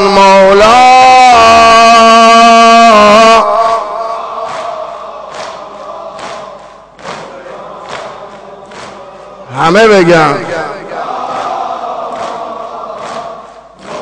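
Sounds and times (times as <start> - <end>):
chest slapping in unison: 4.4 - 9.3.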